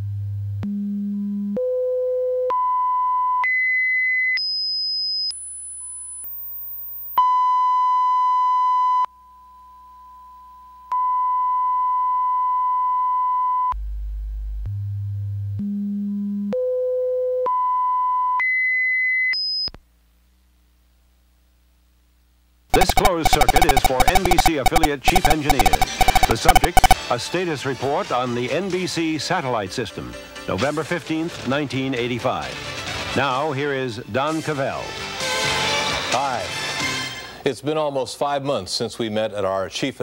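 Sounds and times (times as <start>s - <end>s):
steady reference tone: 22.8s - 27.0s
test tones stepping in pitch: 22.8s - 27.0s.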